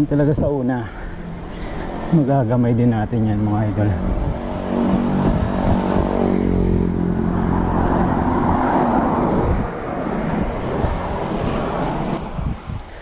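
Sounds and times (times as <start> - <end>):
motorcycle passing: 0.0 - 13.0
steady rushing noise: 0.0 - 13.0.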